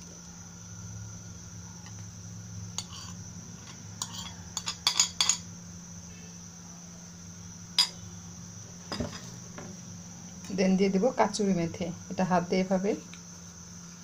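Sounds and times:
metal spoon clinking on plate: 2.8s - 5.5s.

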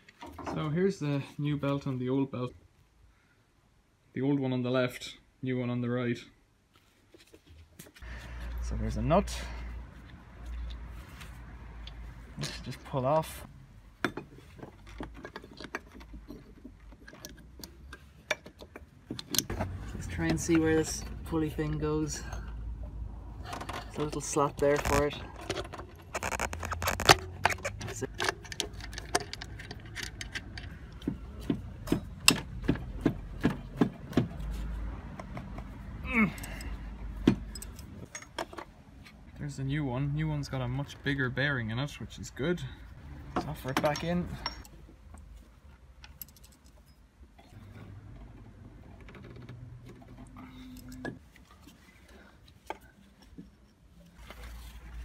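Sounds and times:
metal clicks and knocks: 14.0s - 20.8s, 23.5s - 34.4s, 43.2s - 51.3s
metal clicks and clinks: 26.7s - 31.0s, 37.4s - 38.6s, 43.3s - 44.8s, 46.0s - 47.6s.

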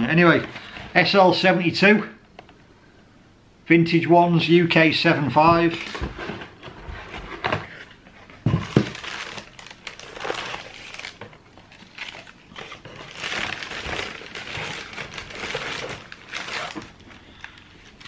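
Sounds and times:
paper rustling and crinkling: 5.5s - 18.0s.

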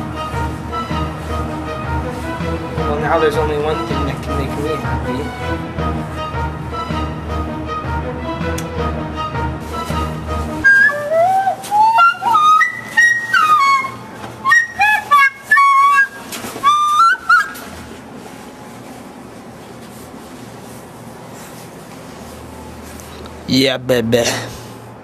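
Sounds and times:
recorder flute playing: 0.0s - 17.9s.

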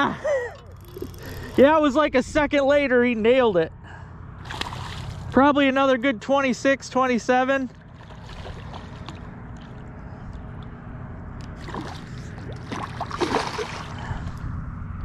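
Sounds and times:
steady low rumble: 0.0s - 15.0s
fish splashing at water surface: 8.0s - 9.8s, 11.6s - 14.2s.

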